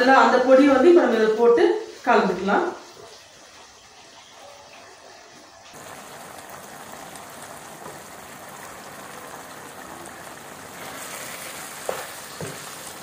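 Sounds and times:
chicken sizzling in pan: 0:02.8 - 0:13.0
wooden spatula stirring: 0:10.0 - 0:13.0.

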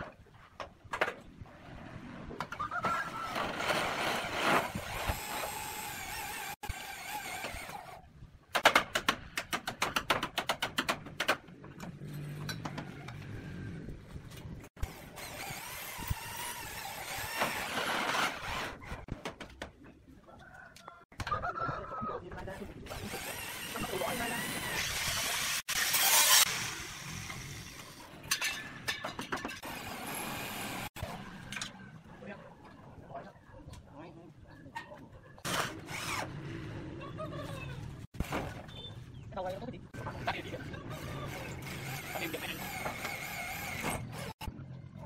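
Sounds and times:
roof tiles and tools clattering: 0:28.2 - 0:29.9.

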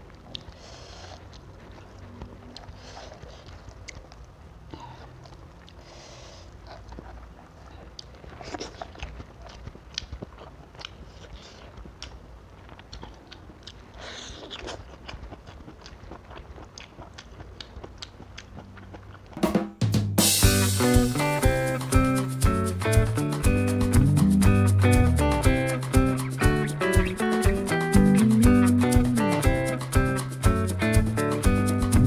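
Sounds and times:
chewing and mouth smacks: 0:00.0 - 0:19.4.

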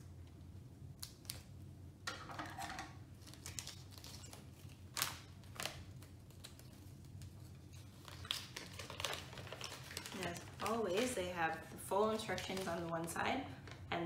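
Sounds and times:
bag crackling on countertop: 0:03.1 - 0:13.9
foil bag crinkling: 0:03.1 - 0:13.9
paper leaflet unfolding: 0:03.2 - 0:10.6.

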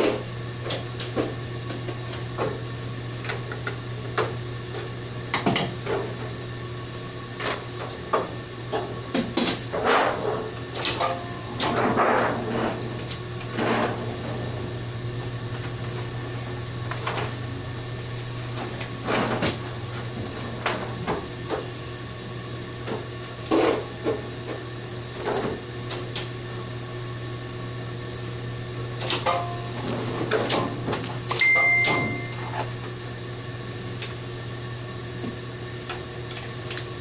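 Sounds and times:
printing press humming: 0:00.0 - 0:26.8, 0:28.2 - 0:37.0
short high tone: 0:31.4 - 0:32.6.

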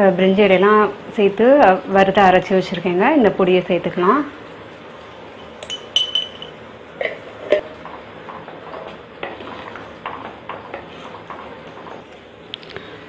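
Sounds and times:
ringing clink: 0:05.4 - 0:06.6.

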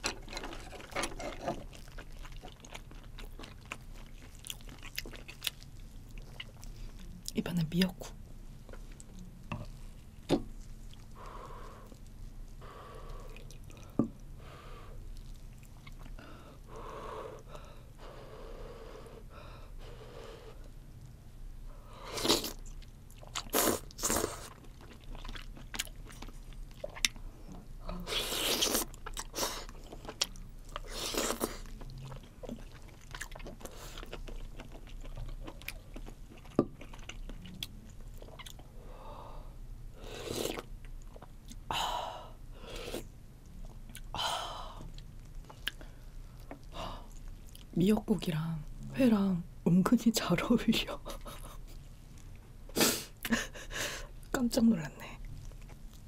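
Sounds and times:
chewing and mouth noises: 0:00.0 - 0:07.4, 0:08.6 - 0:14.3, 0:15.1 - 0:16.2, 0:22.2 - 0:38.8, 0:40.2 - 0:41.7, 0:44.8 - 0:47.7, 0:55.2 - 0:56.0.

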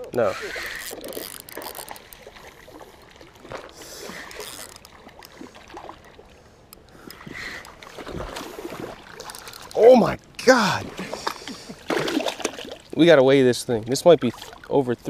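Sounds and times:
water sloshing and splashing: 0:00.0 - 0:15.0
fish thrashing in water: 0:00.3 - 0:06.4, 0:07.1 - 0:09.8, 0:10.8 - 0:13.0.

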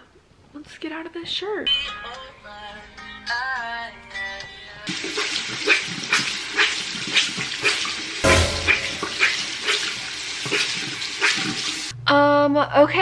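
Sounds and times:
tap water running: 0:04.9 - 0:11.9.

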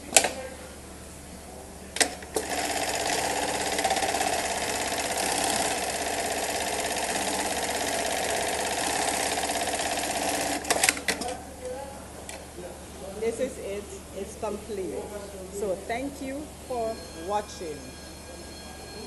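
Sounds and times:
sewing machine stitching: 0:02.0 - 0:11.3.

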